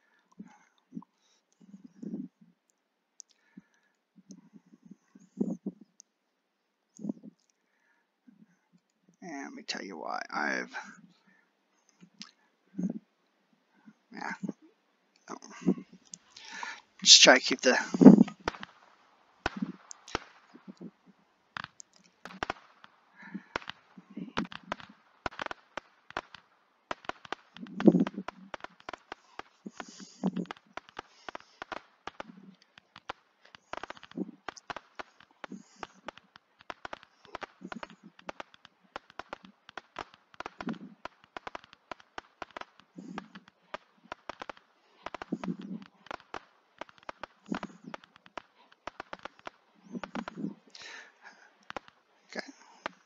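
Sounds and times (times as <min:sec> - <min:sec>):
roman candles popping: 0:00.0 - 0:02.5, 0:03.2 - 0:06.1, 0:06.9 - 0:13.1, 0:13.7 - 0:53.0
deep firework thud: 0:17.7 - 0:21.0, 0:21.6 - 0:51.0.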